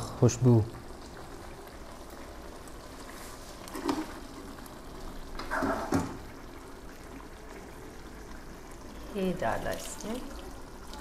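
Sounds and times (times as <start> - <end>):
curry bubbling in a pot: 0.0 - 11.0.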